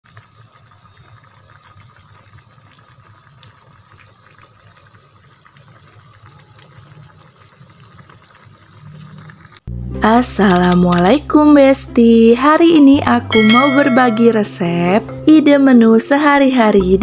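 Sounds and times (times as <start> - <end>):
soup boiling and bubbling: 0.0 - 9.8.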